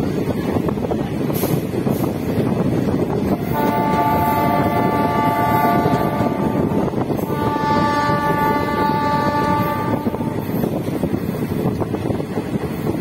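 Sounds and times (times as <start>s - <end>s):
train rumbling on rails: 0.0s - 13.0s
train horn blasts: 3.4s - 10.8s.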